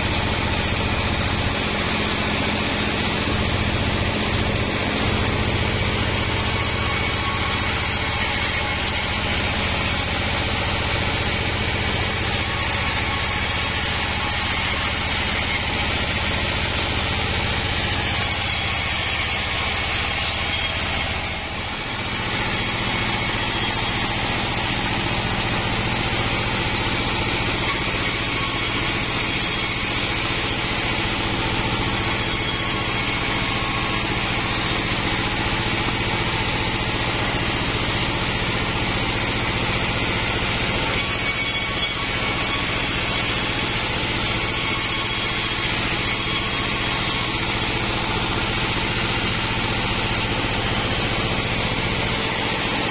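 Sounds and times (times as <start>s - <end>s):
saw blade cutting planks: 0.0s - 52.9s
sawmill engine drone: 0.0s - 52.9s.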